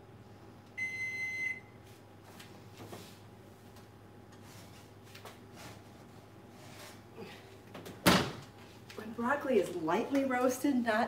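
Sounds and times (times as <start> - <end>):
appliance button beep: 0.8 - 1.7.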